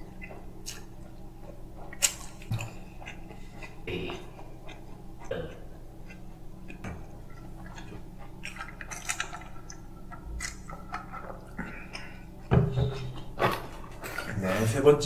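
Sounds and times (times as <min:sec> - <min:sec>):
man chewing: 0:00.0 - 0:14.4
crackly slurping clicks: 0:06.0 - 0:12.1.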